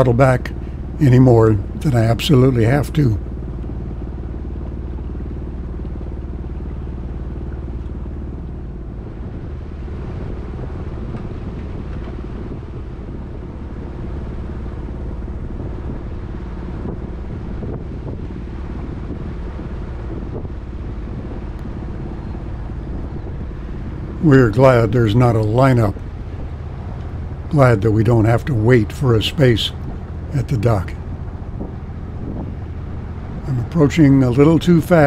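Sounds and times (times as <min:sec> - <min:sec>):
outboard motor running: 0:00.0 - 0:35.0.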